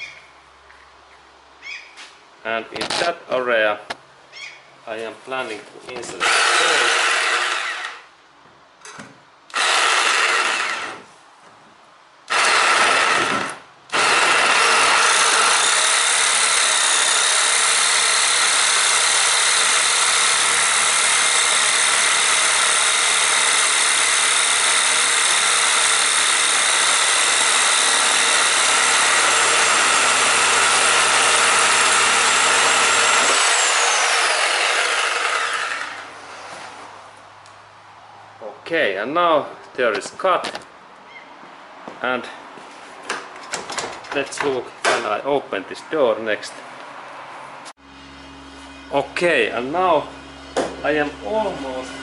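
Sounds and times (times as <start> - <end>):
reciprocating saw cutting metal: 6.2 - 8.1, 12.3 - 36.4.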